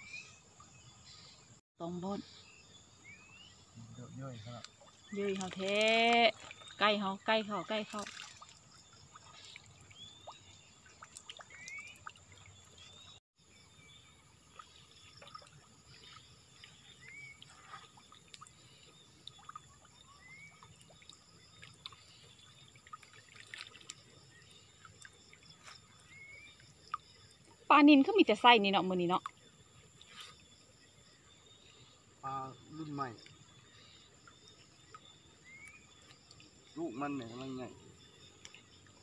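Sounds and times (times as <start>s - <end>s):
water trickling and dripping: 3.7s - 39.0s
small ticks: 4.6s - 6.7s.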